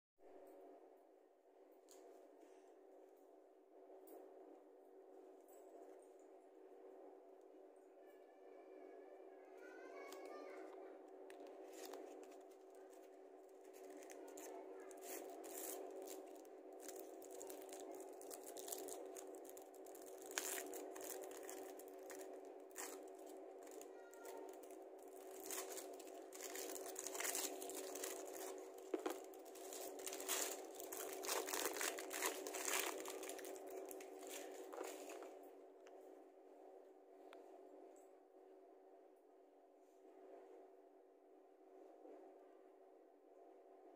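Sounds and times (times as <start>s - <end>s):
low hum: 0.2s - 43.9s
wrapper crinkling and tearing: 11.4s - 35.3s.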